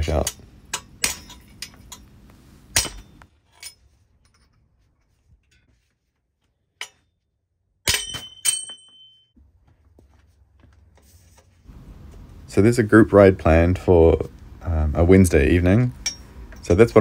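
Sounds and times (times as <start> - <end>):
metal knocks and clinks: 0.2 - 2.1, 2.8 - 4.6, 7.9 - 9.4
metallic ring: 0.2 - 2.1, 2.7 - 4.6, 6.7 - 9.4, 16.0 - 16.8
hammer strikes on metal: 2.7 - 3.2, 7.8 - 9.2.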